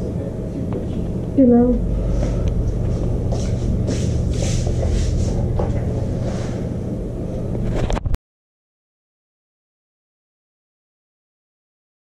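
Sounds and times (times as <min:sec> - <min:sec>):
low rumble and hum: 0:00.0 - 0:08.2.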